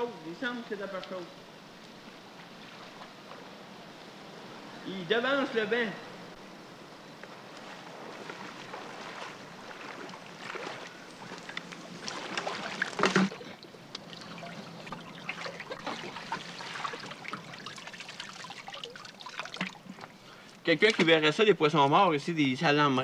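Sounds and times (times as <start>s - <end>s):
water sloshing and splashing: 7.4s - 21.2s.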